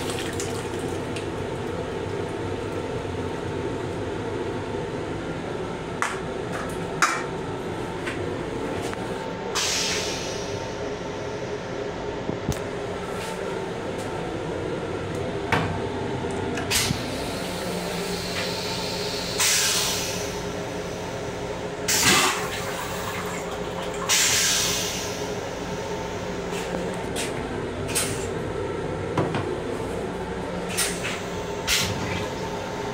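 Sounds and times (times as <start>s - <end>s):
steady rail car hum: 1.6s - 32.9s
toilet flushing whoosh: 16.7s - 26.5s, 30.7s - 32.9s.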